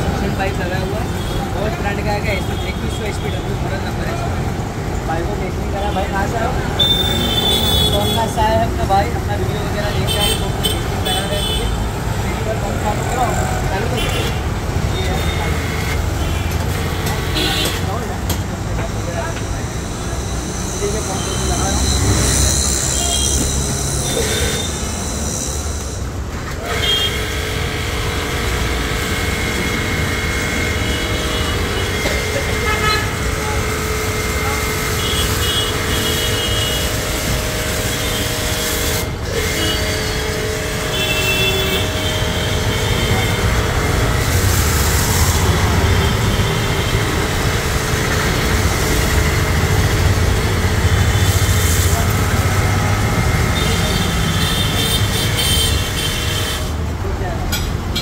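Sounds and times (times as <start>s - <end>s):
street traffic: 0.0s - 58.0s
car horn toots: 26.6s - 33.9s, 34.9s - 47.6s
pressure washer running: 26.6s - 56.6s.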